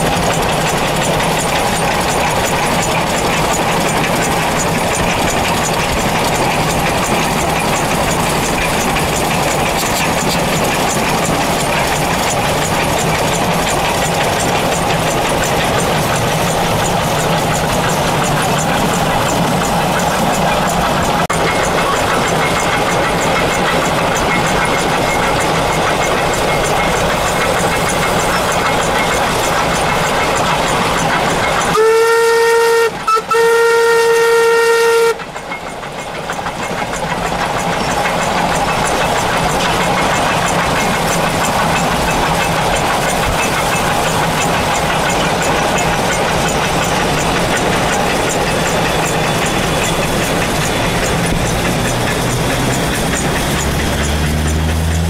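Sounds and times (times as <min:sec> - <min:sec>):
locomotive running noise: 0:00.0 - 0:55.0
steam locomotive whistle: 0:31.6 - 0:35.4.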